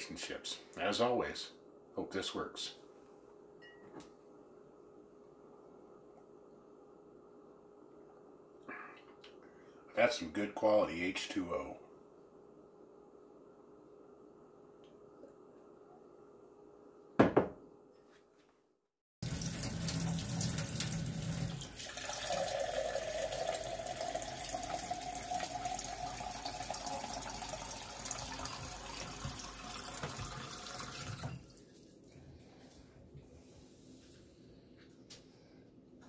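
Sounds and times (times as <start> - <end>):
water running into a glass: 19.2 - 31.7.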